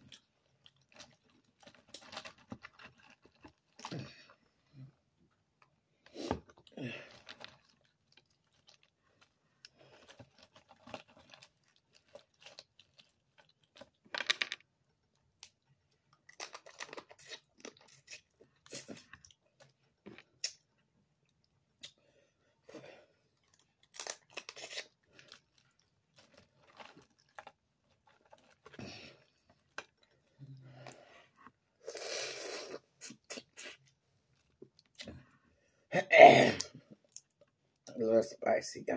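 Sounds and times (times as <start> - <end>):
wet chewing: 0.0 - 4.7, 5.6 - 14.2, 14.9 - 22.0, 23.2 - 31.9
shells cracking and tearing: 23.8 - 25.0.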